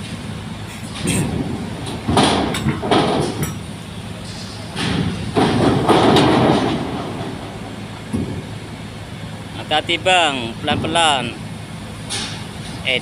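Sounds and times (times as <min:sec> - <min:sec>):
car engines running: 0:00.0 - 0:13.0
loud rattling thuds: 0:00.9 - 0:08.9, 0:10.5 - 0:12.8.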